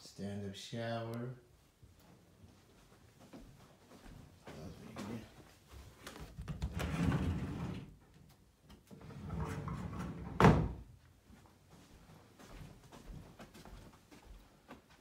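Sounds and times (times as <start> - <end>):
door shuffling sounds: 2.0 - 11.4.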